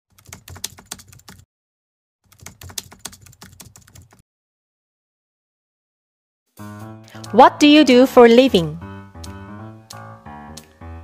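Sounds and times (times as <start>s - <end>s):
keyboard typing: 0.1s - 1.4s, 2.3s - 4.2s, 7.2s - 7.4s, 9.2s - 10.8s.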